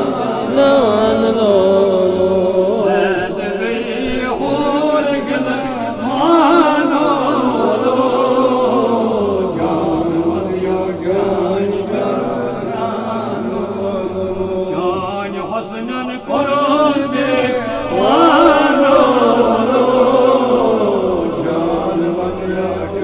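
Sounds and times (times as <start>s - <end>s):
sustained drone: 0.0s - 16.3s
man chanting: 0.0s - 23.0s.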